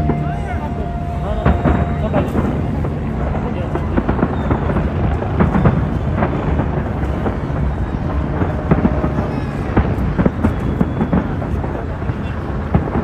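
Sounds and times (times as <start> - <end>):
firework bangs and crackles: 0.0 - 13.0
rumble of firework booms: 0.0 - 13.0.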